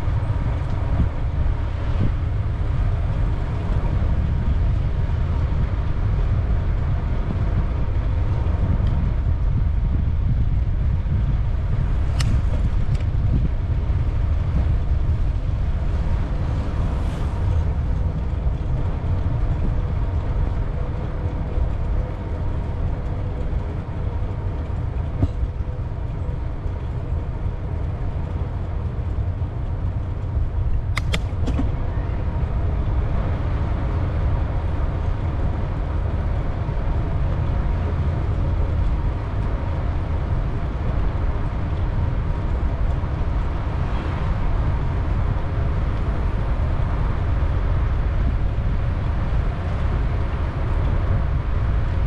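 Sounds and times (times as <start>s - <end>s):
bicycle tyres rolling: 0.0s - 52.0s
wind rumble on microphone: 0.0s - 52.0s
brief clicks: 30.9s - 31.7s.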